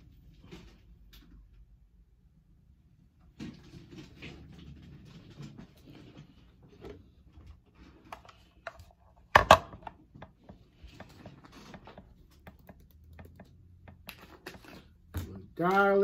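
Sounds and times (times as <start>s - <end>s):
kitchen items clicking and tapping: 7.8s - 16.0s.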